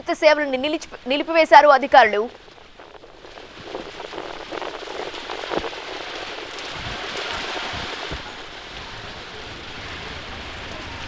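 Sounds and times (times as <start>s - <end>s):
heavy rain on pavement: 0.2s - 11.0s
vehicle passing through water: 2.5s - 11.0s.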